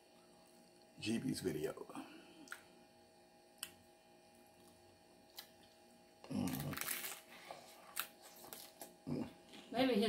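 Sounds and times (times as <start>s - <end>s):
crunching taco shell: 4.6s - 9.0s.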